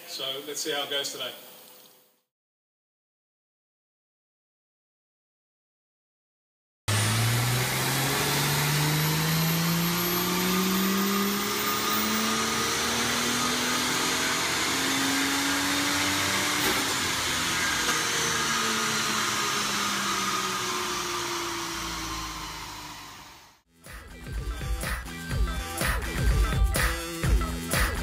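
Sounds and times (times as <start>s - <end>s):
car engine revving on dyno: 6.9s - 23.6s.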